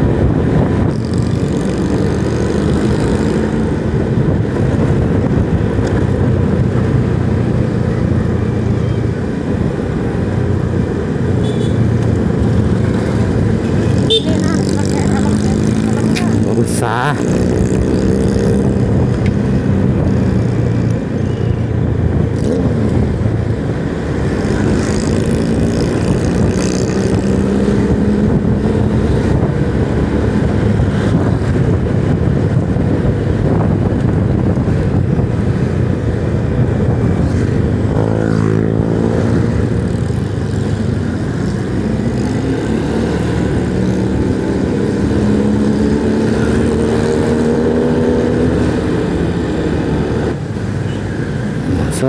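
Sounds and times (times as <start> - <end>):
road noise: 0.0 - 52.0
motorcycle engine running: 12.5 - 16.6.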